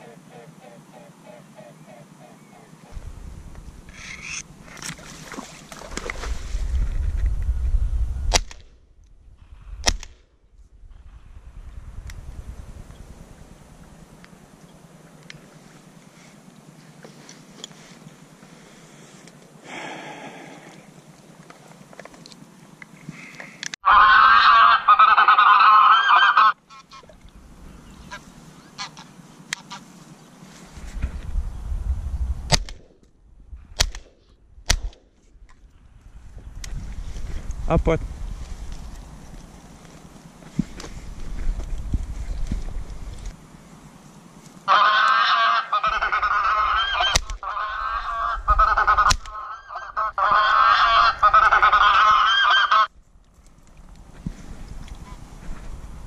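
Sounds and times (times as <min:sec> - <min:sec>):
short sharp cracks: 0:09.8 - 0:10.4, 0:32.5 - 0:33.1, 0:33.8 - 0:35.1
electronic goose honking: 0:23.8 - 0:27.0, 0:28.1 - 0:29.9, 0:44.7 - 0:52.9.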